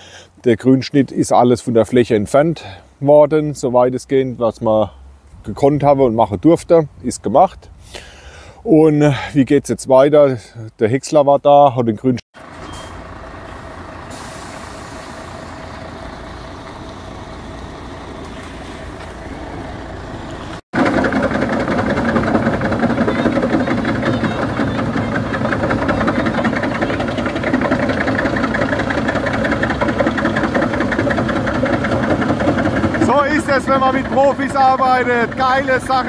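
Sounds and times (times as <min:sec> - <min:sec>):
truck diesel engine running: 0:12.4 - 0:36.0
wood chipper chipping branches: 0:12.4 - 0:36.0.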